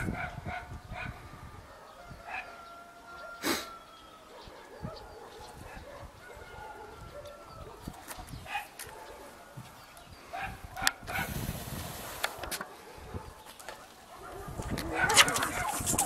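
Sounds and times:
cats yowling: 14.2s - 16.0s.

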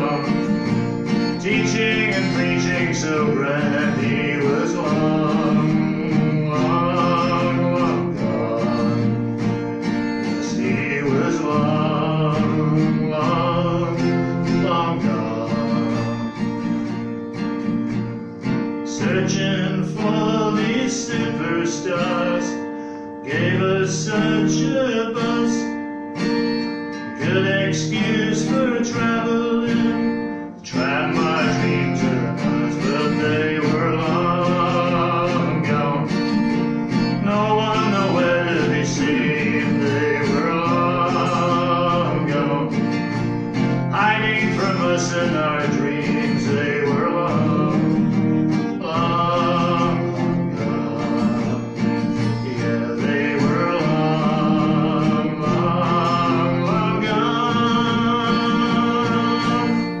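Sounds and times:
man singing folk song: 0.0s - 60.0s
strummed acoustic guitar: 0.0s - 60.0s.

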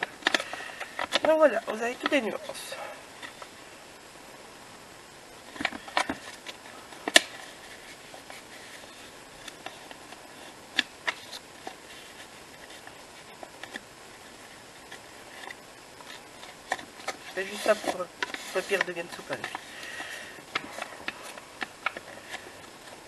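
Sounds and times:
paper rustling: 5.5s - 23.0s.

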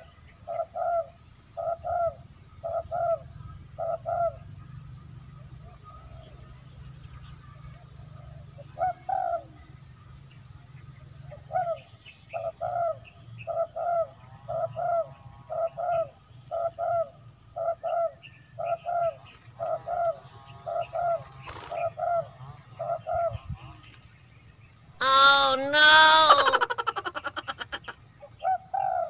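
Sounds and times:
dove cooing: 0.5s - 4.4s, 25.0s - 29.0s.

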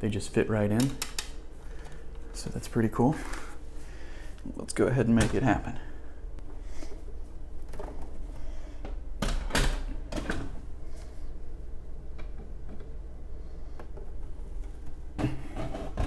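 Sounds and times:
plastic knocks and scraping clicks: 15.2s - 16.0s.

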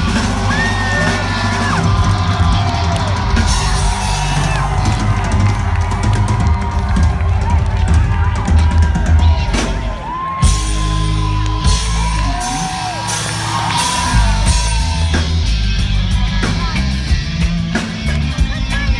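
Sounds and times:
live reggae-rock band playing: 0.0s - 18.9s.

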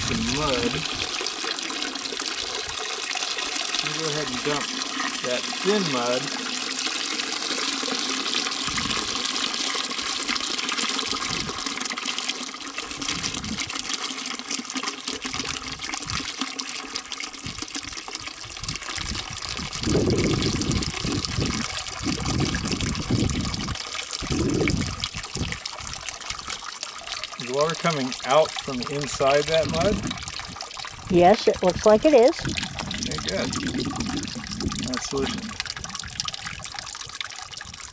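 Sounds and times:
watery mud pouring into a tub: 0.0s - 37.9s.

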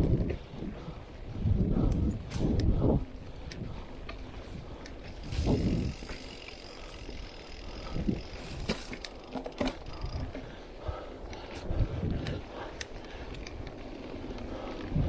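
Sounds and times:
bike tyre rumble on dirt: 0.0s - 15.0s
bike knocks and metallic rattles: 8.1s - 10.4s.

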